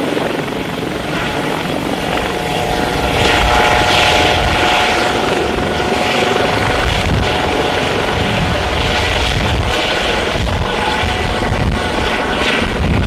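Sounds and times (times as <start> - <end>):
helicopter flying overhead: 0.0 - 13.0.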